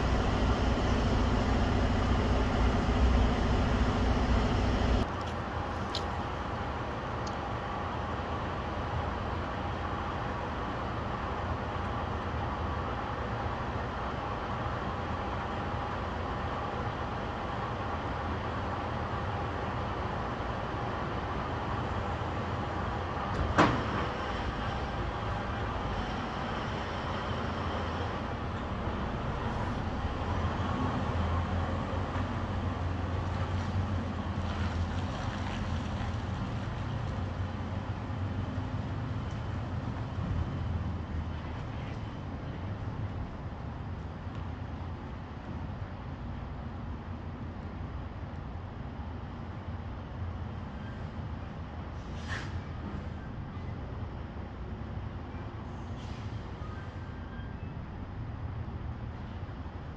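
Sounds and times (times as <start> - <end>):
diesel truck engine running: 0.0 - 7.0.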